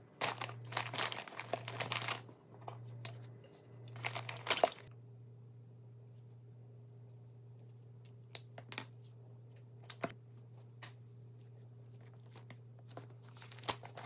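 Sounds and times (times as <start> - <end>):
low steady hum: 0.0 - 14.0
foil lining crinkling: 0.2 - 2.3, 3.9 - 4.9, 11.8 - 14.0.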